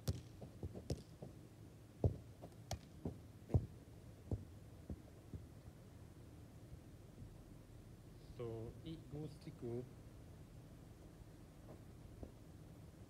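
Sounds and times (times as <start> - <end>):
soft dull thumps: 2.0 - 5.5.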